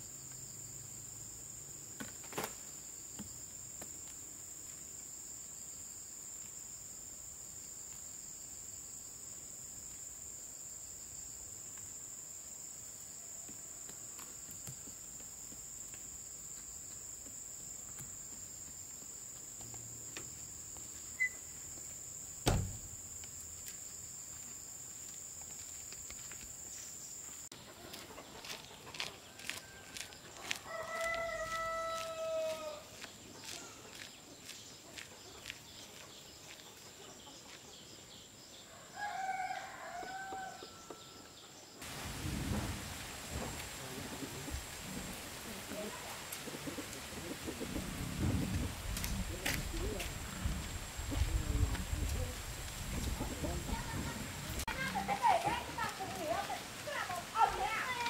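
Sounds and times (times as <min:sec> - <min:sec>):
sharp knock: 0:22.4 - 0:22.9
chicken clucks: 0:27.5 - 0:31.3
rooster crowing: 0:29.3 - 0:32.9, 0:38.7 - 0:41.3.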